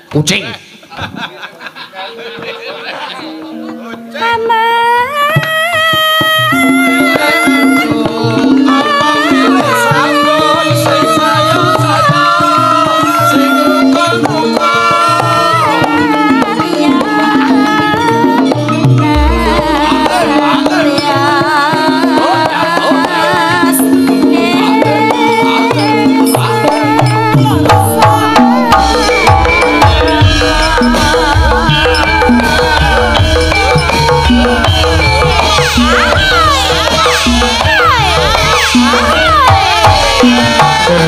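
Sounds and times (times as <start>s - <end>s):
person singing: 3.2s - 41.0s
hand drums: 5.1s - 41.0s
gamelan playing: 18.2s - 21.4s, 26.0s - 41.0s.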